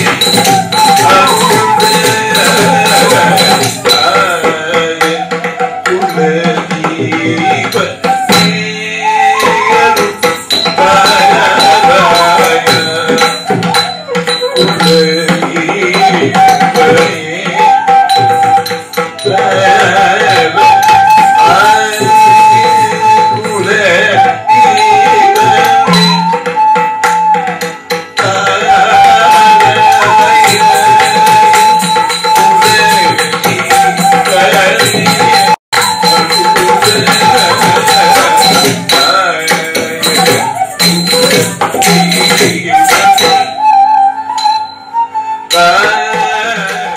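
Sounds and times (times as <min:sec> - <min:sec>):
hand drumming: 0:00.0 - 0:23.6, 0:29.4 - 0:43.7
wavering melody line: 0:07.7 - 0:19.8, 0:29.3 - 0:46.1.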